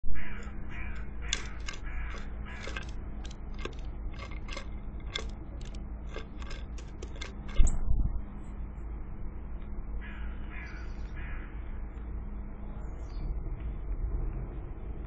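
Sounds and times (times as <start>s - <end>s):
bird pecking on wooden tray: 0.2s - 7.7s
scratching: 0.2s - 7.8s.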